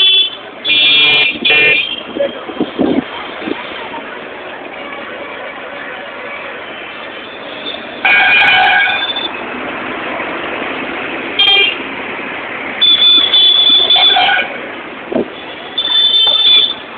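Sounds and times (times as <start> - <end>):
vehicle horns honking: 0.0 - 2.9, 4.6 - 9.4, 11.4 - 11.8, 12.8 - 14.6, 15.3 - 16.9
street traffic noise: 0.0 - 16.9.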